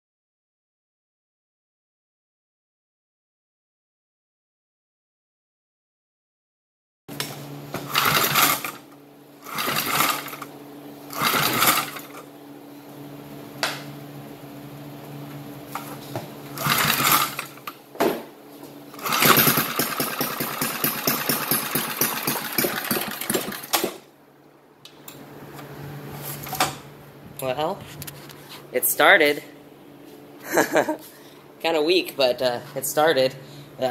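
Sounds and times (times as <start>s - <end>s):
engine being pulled over: 7.2s - 10.5s, 11.1s - 12.3s, 15.7s - 17.8s, 19.0s - 24.0s
small engine running: 7.7s - 10.5s, 11.1s - 12.3s, 15.7s - 17.8s, 18.9s - 24.1s.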